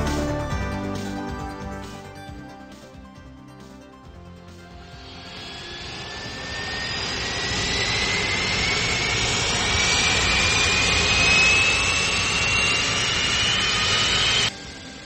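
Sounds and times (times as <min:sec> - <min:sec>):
aircraft turbine engine spooling up: 0:04.2 - 0:15.0
high whine rising in pitch: 0:04.6 - 0:15.0.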